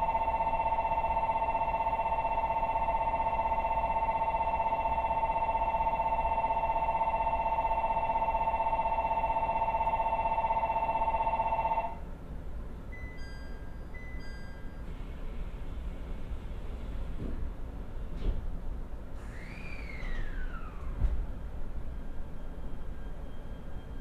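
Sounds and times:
electric bell ringing: 0.0 - 12.0, 13.0 - 14.9
high chime tones: 13.0 - 14.8.

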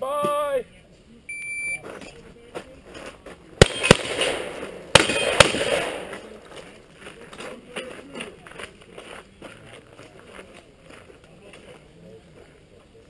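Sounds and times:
shotgun shots echoing: 3.6 - 6.5.

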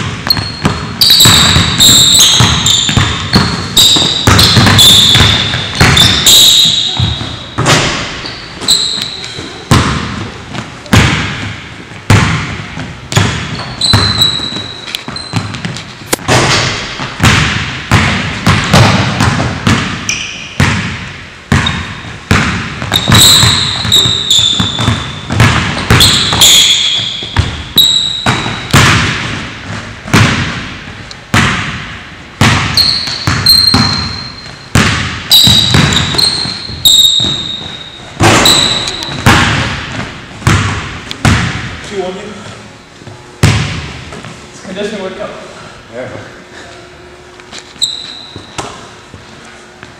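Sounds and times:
basketball bouncing on hardwood: 0.0 - 8.2, 9.7 - 20.0, 20.6 - 30.6, 32.4 - 41.7
sneakers squeaking on court: 0.0 - 30.6, 32.4 - 41.7, 47.5 - 49.2.

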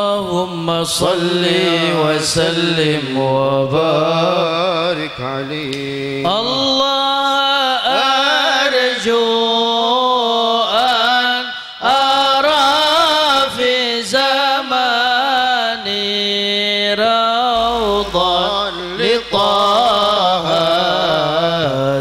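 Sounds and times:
men singing through microphones: 0.0 - 22.0
low bass note: 17.6 - 21.9.

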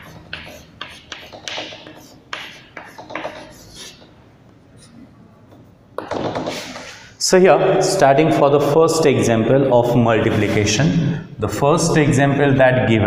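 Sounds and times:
chalk writing on chalkboard: 0.0 - 4.2.

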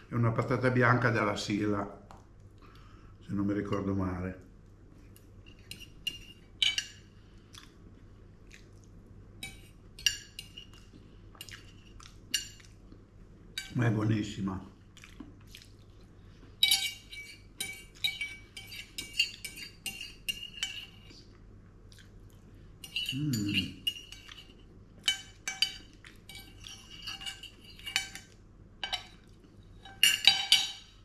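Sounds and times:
cutlery clinking on a plate: 5.5 - 7.0, 16.6 - 21.1, 22.8 - 31.0.

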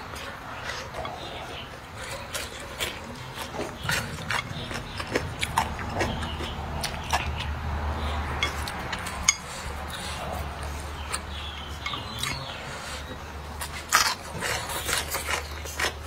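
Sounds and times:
person chewing and lip smacking: 0.0 - 16.0.

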